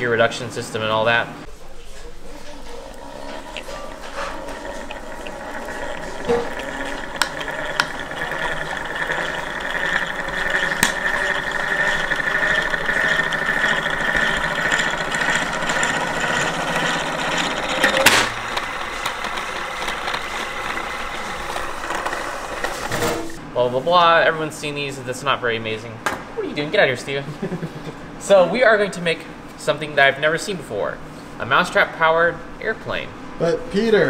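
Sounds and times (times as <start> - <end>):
gear train whirring: 2.1 - 23.4.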